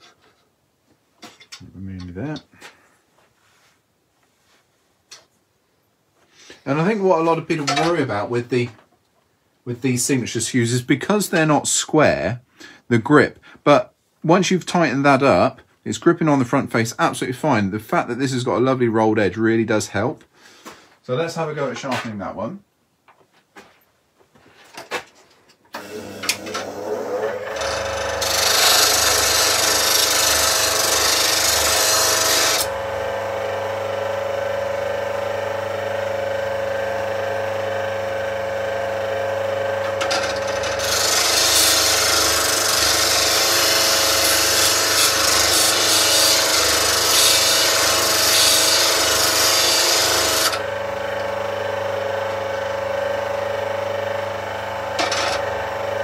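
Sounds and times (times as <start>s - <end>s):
bench grinder humming: 25.8s - 56.0s
chisel grinding on wheel: 26.3s - 32.7s, 39.8s - 50.6s, 55.0s - 55.5s.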